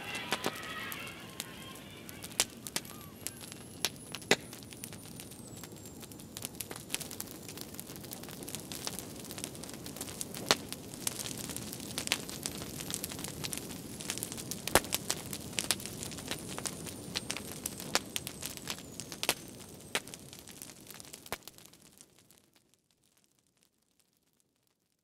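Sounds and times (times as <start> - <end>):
faint high tone sliding down: 0.0 - 3.8
crackling clicks and pops: 0.0 - 25.0.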